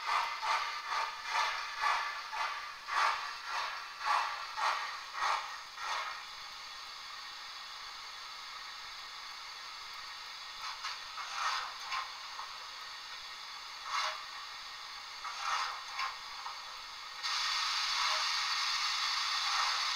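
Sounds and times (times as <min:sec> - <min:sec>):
steady steam hiss: 0:00.0 - 0:19.9
steam hisses from small speaker: 0:00.0 - 0:19.9.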